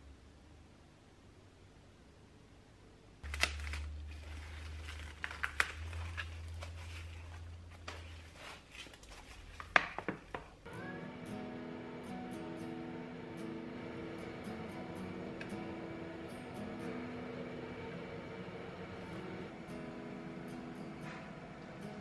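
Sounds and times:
cling wrap crinkling and snapping: 0:03.2 - 0:10.0
low hum: 0:10.7 - 0:22.0.

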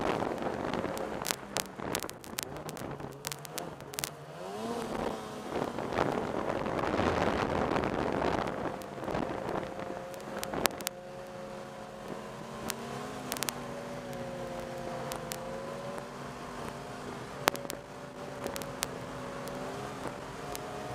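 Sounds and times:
wind rushing over microphone: 0:00.0 - 0:04.0, 0:04.8 - 0:10.9
snowmobile engine running: 0:00.0 - 0:20.9
sharp clicks and knocks: 0:00.8 - 0:04.2, 0:10.1 - 0:11.0, 0:12.6 - 0:16.8, 0:17.4 - 0:17.8, 0:18.4 - 0:19.6.

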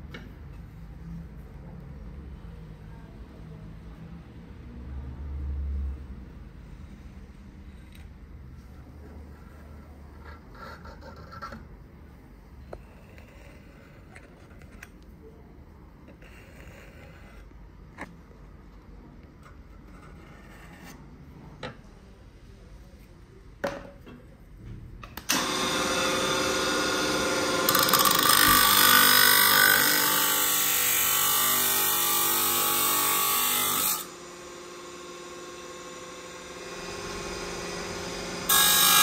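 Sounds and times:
cut-off disc grinding steel: 0:25.3 - 0:39.0.

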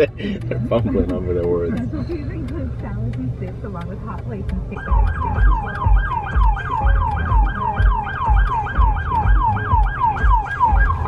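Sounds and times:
low pulsing thump: 0:02.2 - 0:11.0
police siren yelping: 0:04.7 - 0:11.0.

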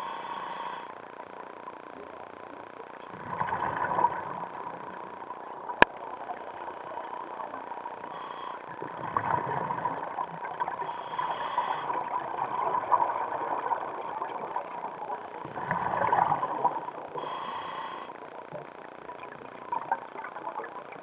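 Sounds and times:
hissing regulator inhalation: 0:00.0 - 0:00.9, 0:08.1 - 0:08.7, 0:10.8 - 0:12.2, 0:17.2 - 0:18.2
exhaled bubbles rushing: 0:03.1 - 0:05.0, 0:08.8 - 0:10.8, 0:12.0 - 0:17.0.

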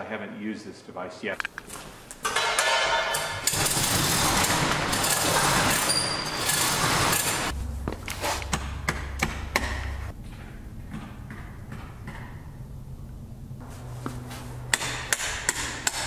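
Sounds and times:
steel roll-up door rattling: 0:02.3 - 0:07.5
low hum: 0:07.5 - 0:14.9.

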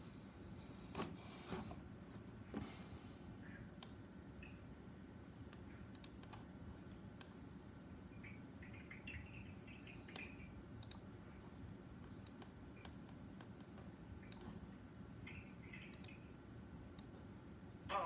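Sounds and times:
low room hum: 0:00.0 - 0:18.0
computer mouse clicking: 0:05.5 - 0:06.5, 0:10.1 - 0:11.1, 0:12.0 - 0:14.6, 0:15.8 - 0:16.2.

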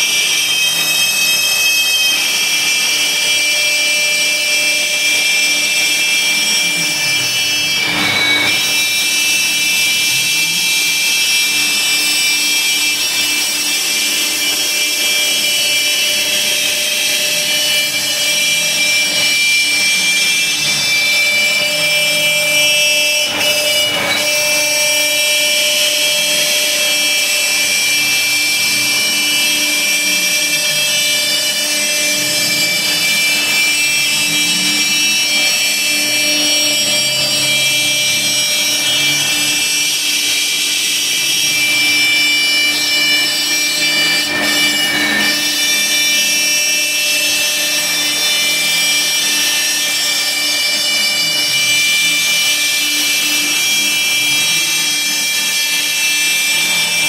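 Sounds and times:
router spindle whining: 0:00.0 - 0:57.0.

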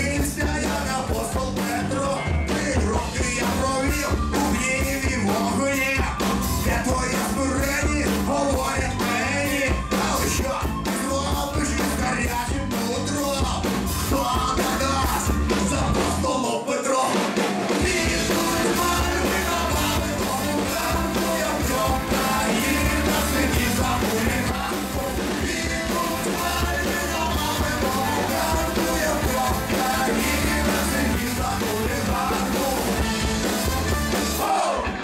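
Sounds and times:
electric guitar: 0:00.0 - 0:16.3, 0:17.2 - 0:35.0
man singing: 0:00.0 - 0:33.8
driving drum beat: 0:00.0 - 0:35.0
trumpet: 0:31.7 - 0:35.0.

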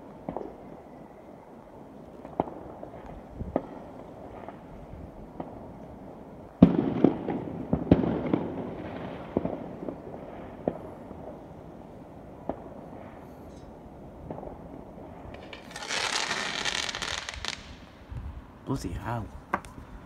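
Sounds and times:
fireworks banging and crackling: 0:00.0 - 0:00.6, 0:02.2 - 0:05.7, 0:06.6 - 0:11.4, 0:12.4 - 0:18.0.

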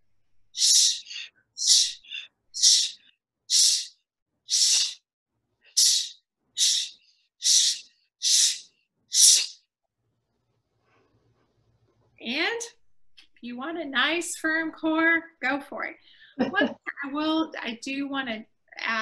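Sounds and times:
forceful shh exhales: 0:00.6 - 0:05.0, 0:05.8 - 0:09.6.

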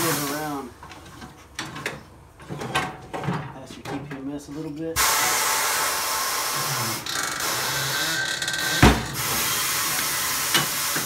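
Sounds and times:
loud steady hiss: 0:00.0 - 0:00.7, 0:05.0 - 0:11.0
thump: 0:08.8 - 0:09.2.

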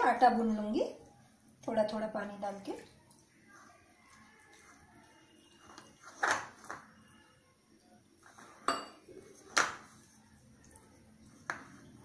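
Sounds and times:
kitchenware clinking and knocking: 0:08.6 - 0:09.8.

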